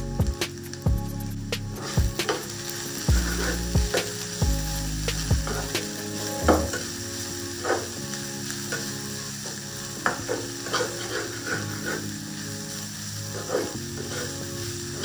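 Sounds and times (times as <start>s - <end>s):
food sizzling in oil: 0.1s - 15.0s
metal spatula scraping and tapping pan: 1.8s - 4.1s, 8.7s - 12.2s, 13.3s - 14.4s.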